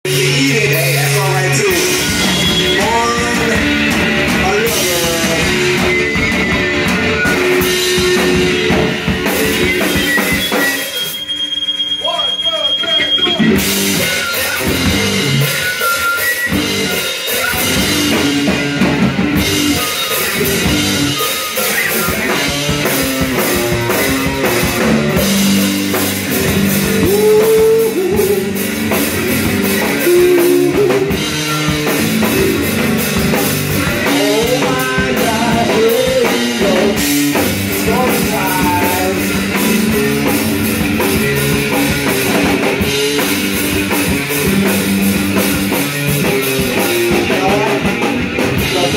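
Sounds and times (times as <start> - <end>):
electric guitar: 0.0 - 11.9, 13.2 - 48.9
drum kit: 0.0 - 48.9
person singing: 0.1 - 8.8, 26.9 - 28.7, 29.8 - 32.8, 33.8 - 40.2, 46.8 - 48.9.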